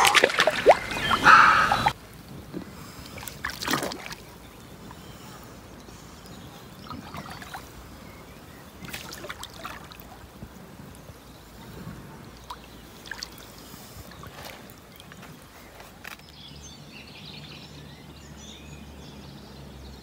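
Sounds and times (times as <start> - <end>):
water sloshing and splashing: 0.0 - 2.0, 3.0 - 4.6, 6.7 - 10.6, 12.3 - 16.1.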